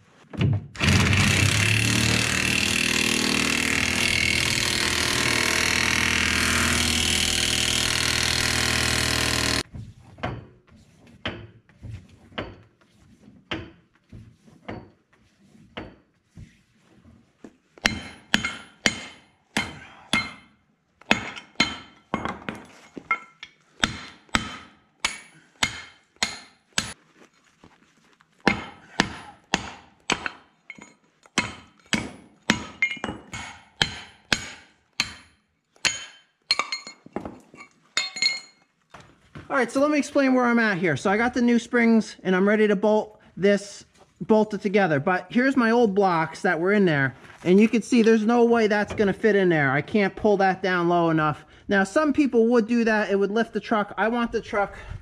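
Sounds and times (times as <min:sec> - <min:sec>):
air impact wrench running: 0:00.8 - 0:09.6.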